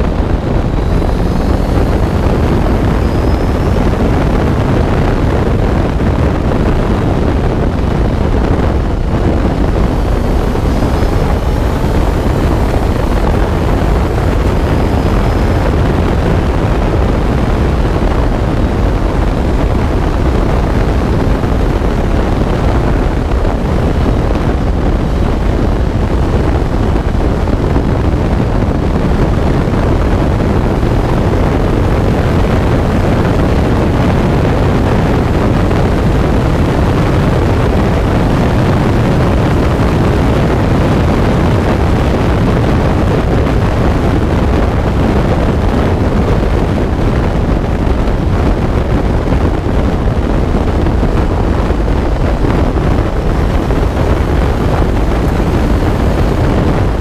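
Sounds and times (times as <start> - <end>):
car engine running: 0.0 - 27.6, 49.8 - 57.0
wind buffeting microphone: 0.0 - 57.0.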